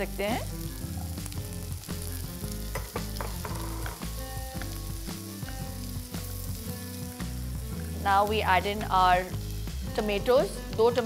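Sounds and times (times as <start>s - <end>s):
vegetables sizzling in a frying pan: 0.0s - 11.0s.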